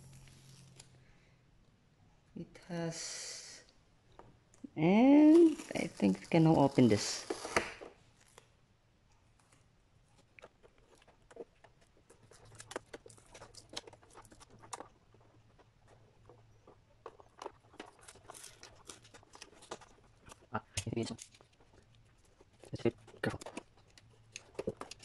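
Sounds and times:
plastic sheet crackling: 5.1s - 8.5s.

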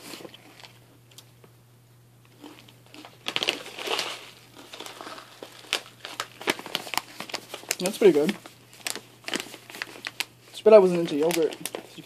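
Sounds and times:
plastic pouch crinkling: 2.6s - 12.0s.

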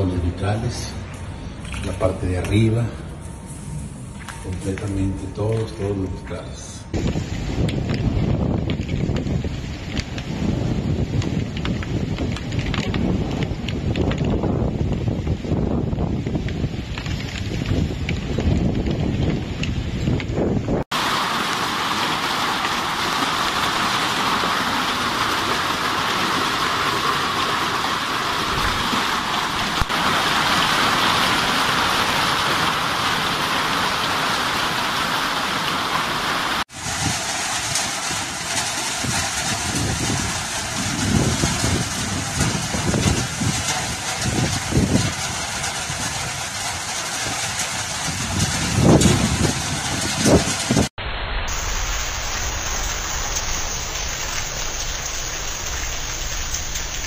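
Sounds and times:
low rumbles: 0.0s - 20.9s, 50.9s - 57.0s
heavy rain hiss: 20.9s - 57.0s.

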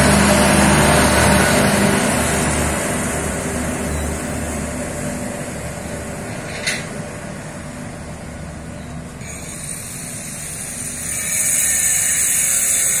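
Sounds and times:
train rumbling on track: 0.0s - 13.0s
high buzzing hiss: 9.2s - 13.0s.

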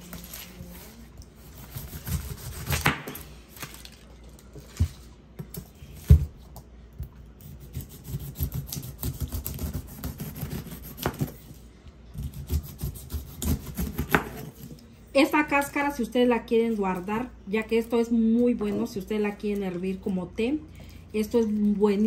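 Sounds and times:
knife cutting pineapple rind: 0.2s - 3.7s, 7.4s - 14.8s.

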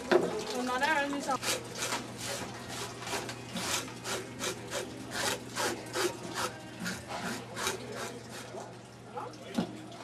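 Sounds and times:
fish scaler scraping scales: 1.4s - 8.6s.

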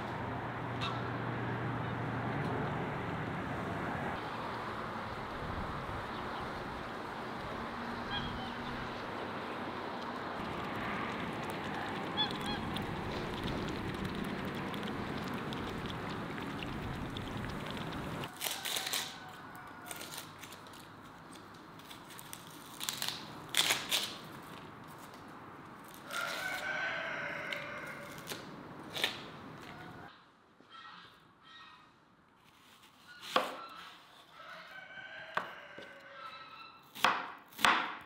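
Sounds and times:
geese and ducks honking: 10.8s - 13.4s
knife peeling an onion: 18.3s - 24.5s, 27.5s - 29.3s.

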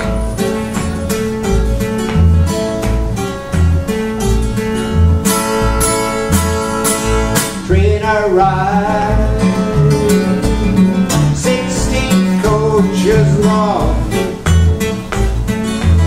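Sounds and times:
acoustic guitars playing: 0.0s - 16.0s
pulsing bass: 0.0s - 16.0s
bending high melody line: 5.8s - 14.4s.

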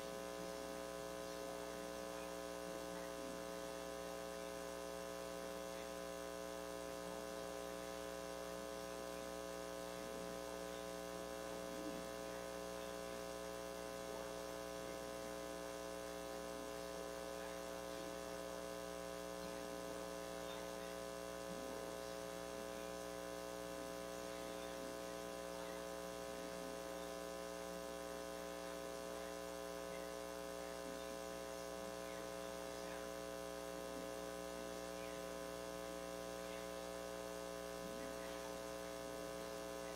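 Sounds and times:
electrical mains hum: 0.0s - 39.9s.

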